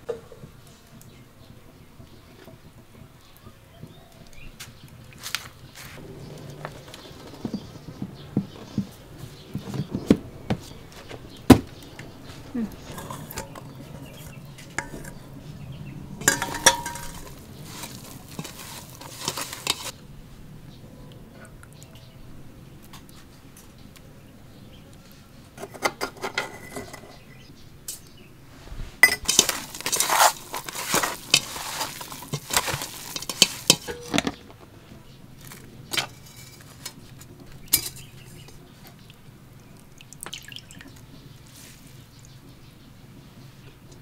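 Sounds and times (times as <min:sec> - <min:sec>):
cookware and utensils clattering: 0:06.0 - 0:20.0, 0:25.6 - 0:28.1, 0:29.0 - 0:34.6, 0:35.4 - 0:39.0.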